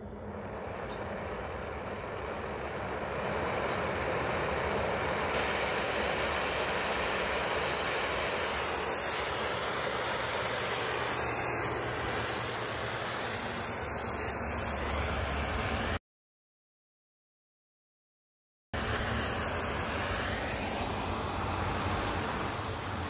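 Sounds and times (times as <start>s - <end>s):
torch flame hissing: 2.0s - 16.0s, 18.8s - 23.0s.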